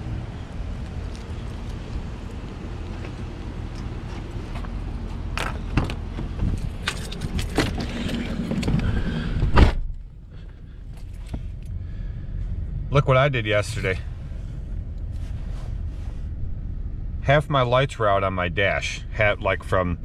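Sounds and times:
low outdoor rumble: 0.0 - 20.0
car door slamming: 7.4 - 10.0.

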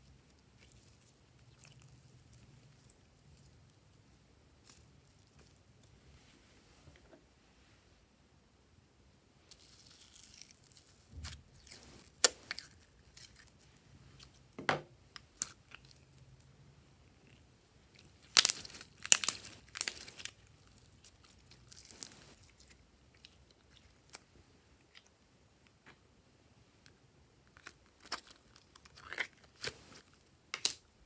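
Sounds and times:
slime popping and crackling: 18.1 - 22.4.

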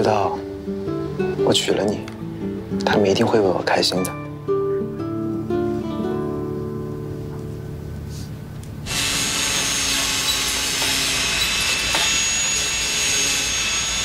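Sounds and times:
soft guitar music: 0.0 - 8.9
angle grinder on metal: 8.9 - 14.0.

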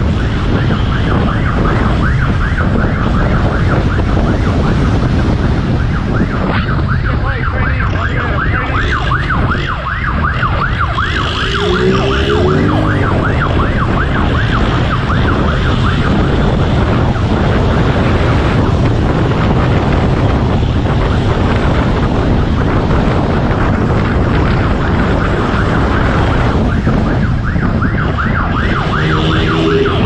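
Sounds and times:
wind and road noise: 0.0 - 30.0
police siren yelping: 5.7 - 16.1, 25.2 - 30.0.

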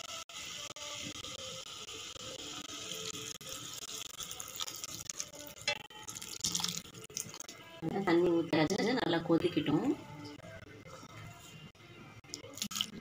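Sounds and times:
food sizzling in oil: 0.0 - 7.8.

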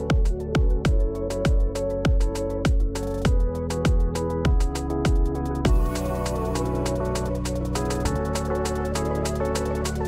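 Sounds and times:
electronic music with quick beat: 0.0 - 10.0.

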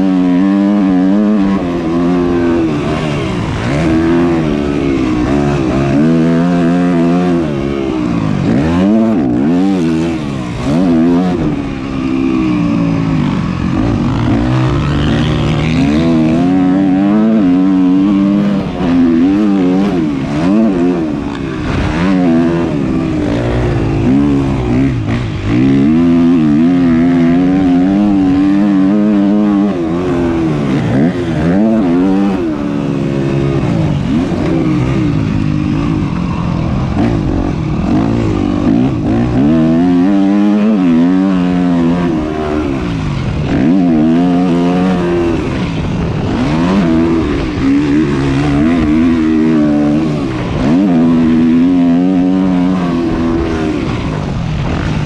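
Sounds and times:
motocross bike engine revving: 0.0 - 55.0.

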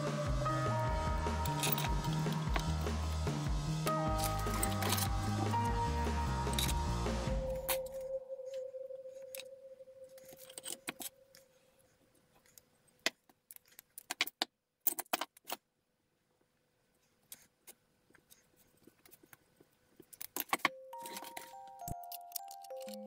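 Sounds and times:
steel pieces clinking: 1.4 - 2.7, 4.1 - 5.2, 6.5 - 6.8, 20.1 - 23.0.

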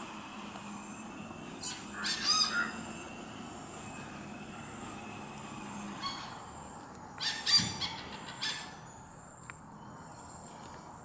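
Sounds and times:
faint high whine: 0.0 - 7.2
hornbill calling: 0.2 - 9.0.

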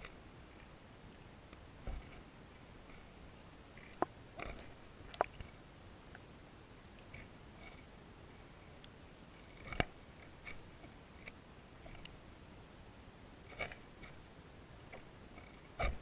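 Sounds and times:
clicks and taps underwater: 5.1 - 5.4.

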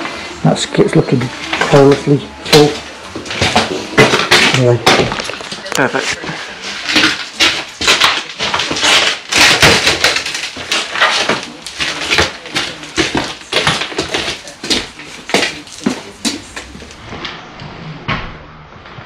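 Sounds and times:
rubble clattering and knocking: 1.4 - 17.0.

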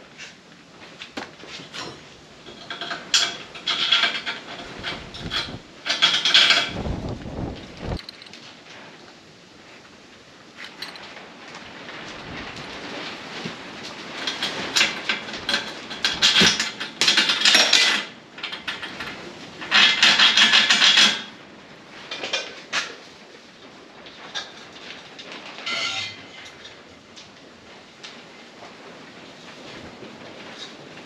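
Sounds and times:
hand tool scraping steel: 25.7 - 26.5.

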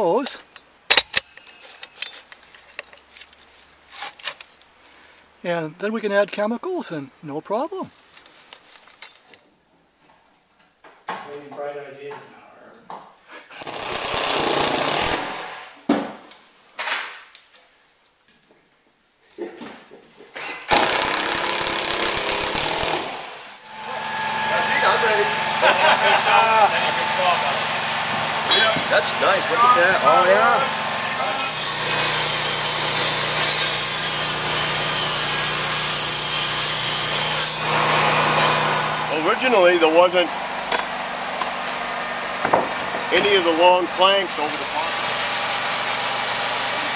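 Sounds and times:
cordless drill driving screws: 13.6 - 15.5, 20.4 - 23.4
circular saw cutting wood: 20.7 - 46.9.

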